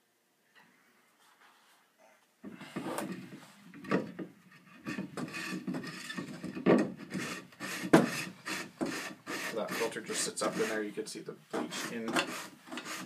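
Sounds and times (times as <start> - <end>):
plastic rubbing and scraping: 2.6 - 13.0.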